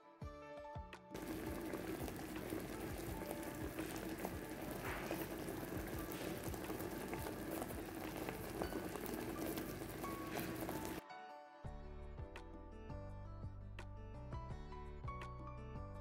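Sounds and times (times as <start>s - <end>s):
sauce bubbling in a frying pan: 1.2s - 11.0s.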